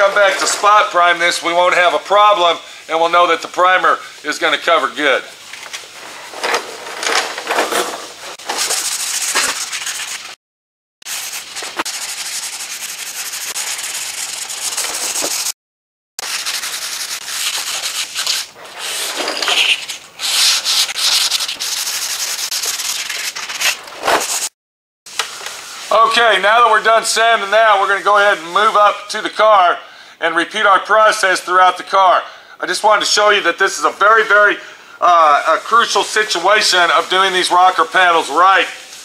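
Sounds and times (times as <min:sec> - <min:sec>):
sandpaper scraping on car panel: 0:08.3 - 0:10.4, 0:11.1 - 0:15.5, 0:16.2 - 0:24.5.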